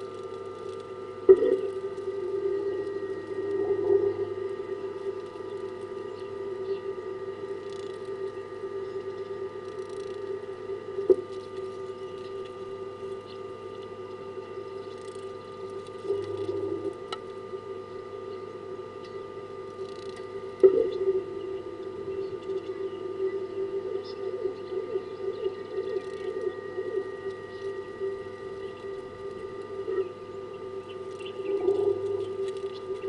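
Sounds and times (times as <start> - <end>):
low hum of fixed tones: 0.0 - 33.0
faint high bird chirps: 20.8 - 27.8.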